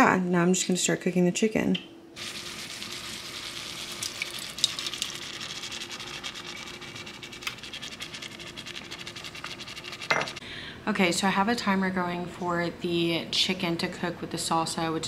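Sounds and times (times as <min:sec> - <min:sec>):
faint steady hum: 0:00.0 - 0:15.0
chicken sizzling in a pot: 0:02.2 - 0:07.8.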